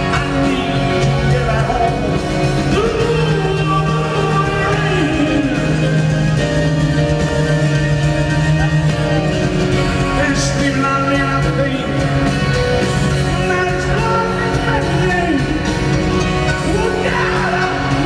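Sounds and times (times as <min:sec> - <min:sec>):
man singing lead: 0:00.0 - 0:06.5, 0:10.0 - 0:12.2, 0:13.2 - 0:18.0
drums: 0:00.0 - 0:18.0
electric guitar: 0:00.0 - 0:18.0
keyboards: 0:00.0 - 0:18.0.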